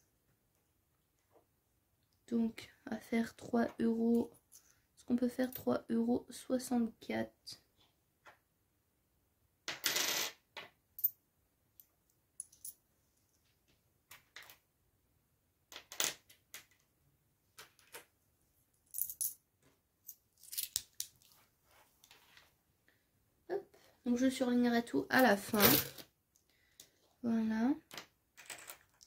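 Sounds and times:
coins clinking: 0:18.9 - 0:19.4.

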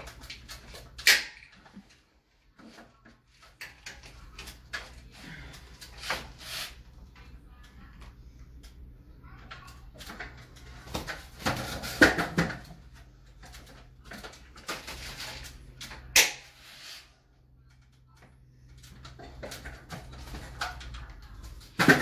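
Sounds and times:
roller blind clicks and knocks: 0:13.4 - 0:16.0.

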